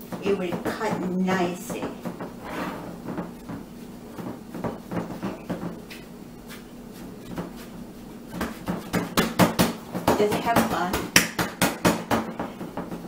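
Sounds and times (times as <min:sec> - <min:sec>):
hands patting food mixture: 0:03.0 - 0:13.0.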